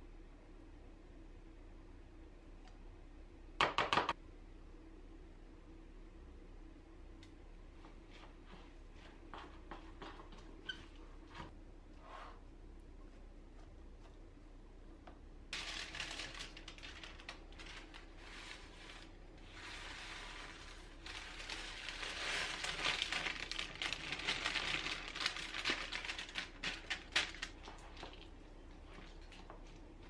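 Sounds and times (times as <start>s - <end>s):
baking paper crinkling: 15.5s - 30.0s.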